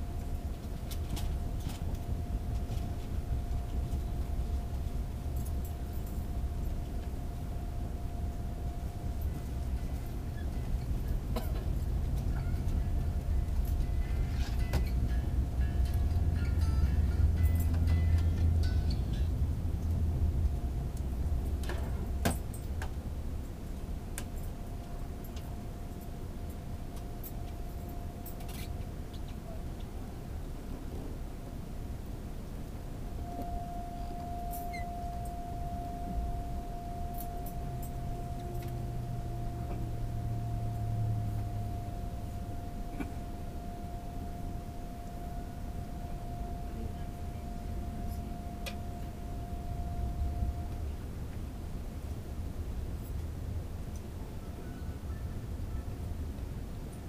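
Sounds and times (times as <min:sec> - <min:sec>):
faint high hum: 0:00.0 - 0:57.0
train interior rumble: 0:00.0 - 0:57.0.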